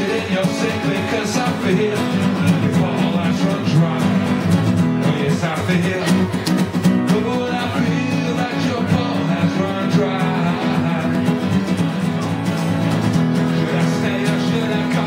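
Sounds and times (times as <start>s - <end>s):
man singing: 0.0s - 12.2s, 13.3s - 15.0s
acoustic guitar strumming: 0.0s - 15.0s.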